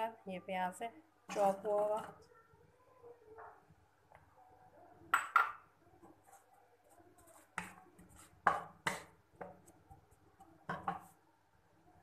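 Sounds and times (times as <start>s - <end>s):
wooden spatula tapping metal pan: 7.6s - 9.6s.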